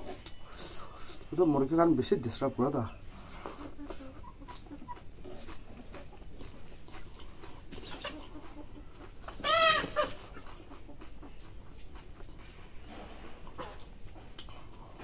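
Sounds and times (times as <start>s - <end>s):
eating by hand and chewing: 0.0s - 15.0s
chicken squawking: 2.8s - 6.2s, 7.7s - 11.5s.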